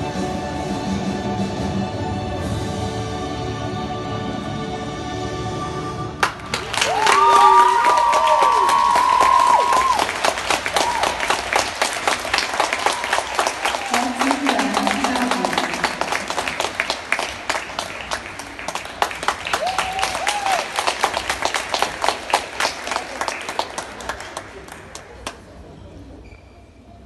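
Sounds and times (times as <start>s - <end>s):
audience applauding: 6.2s - 25.5s.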